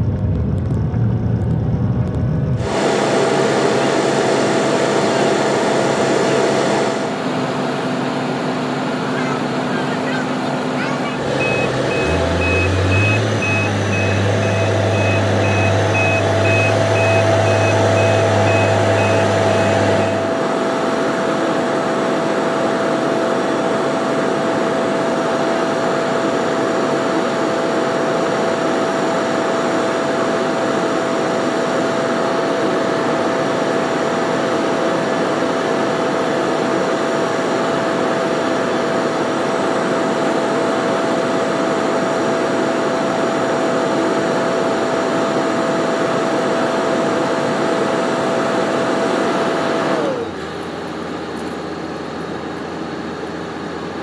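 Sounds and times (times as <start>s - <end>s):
heavy truck engine running: 0.0s - 54.0s
machinery drone with whine: 0.0s - 54.0s
back-up alarm beeping: 11.2s - 20.3s.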